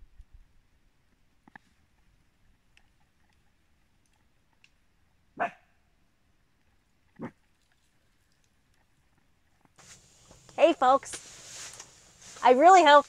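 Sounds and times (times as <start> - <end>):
dog barking: 5.4 - 5.8.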